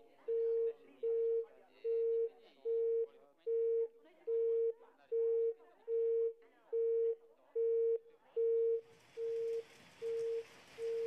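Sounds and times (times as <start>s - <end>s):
telephone busy signal beeps: 0.3s - 11.0s
phone line crackle: 8.8s - 11.0s
steady hiss: 8.8s - 11.0s.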